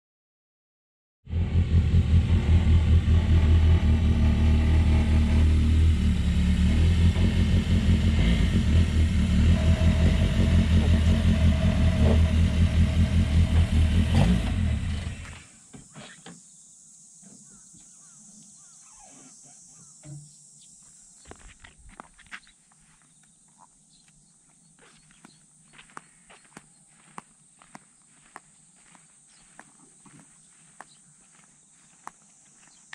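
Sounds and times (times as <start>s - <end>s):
car engine idling: 1.3s - 15.4s.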